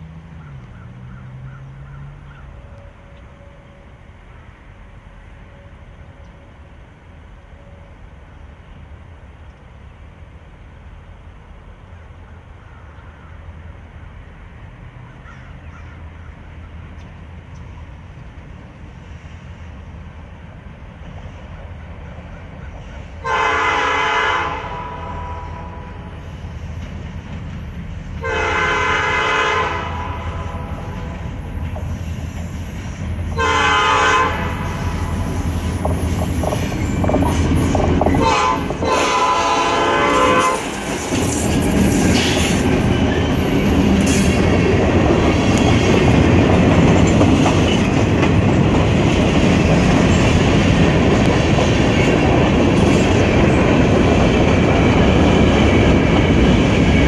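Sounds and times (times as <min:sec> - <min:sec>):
diesel locomotive engines rumbling: 0:00.0 - 0:57.0
locomotive air horn blasts: 0:23.2 - 0:26.2, 0:28.2 - 0:31.3, 0:33.3 - 0:35.4, 0:38.1 - 0:40.8.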